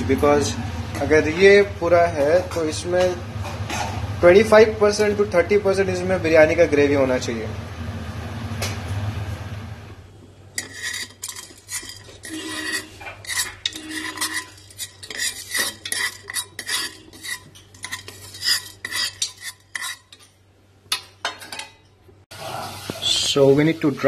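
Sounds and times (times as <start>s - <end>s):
spoon scraping metal pot: 10.5s - 21.8s.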